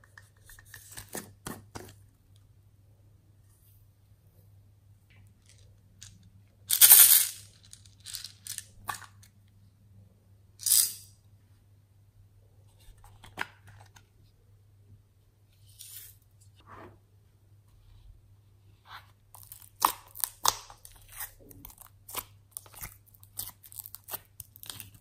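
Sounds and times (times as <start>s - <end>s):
beads and sprinkles rattling: 6.7s - 8.8s.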